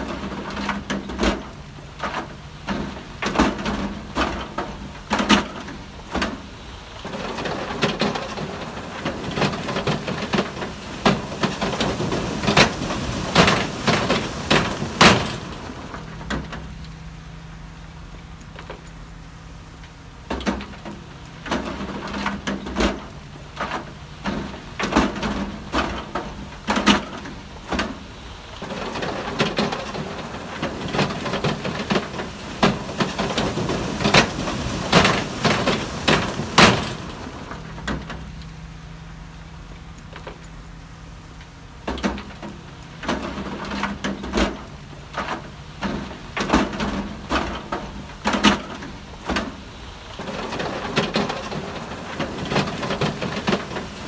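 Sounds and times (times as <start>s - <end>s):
diesel machine engine drone: 0.0s - 54.0s
metallic clanks and knocks: 20.3s - 38.5s, 41.8s - 54.0s.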